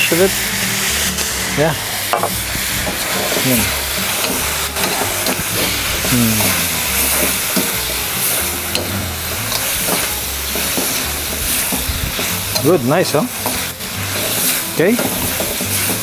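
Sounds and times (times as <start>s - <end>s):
metal ladle scraping wok: 0.0s - 16.0s
vegetables sizzling in a wok: 0.0s - 16.0s
ladle clicking against wok: 9.5s - 12.8s, 13.4s - 16.0s.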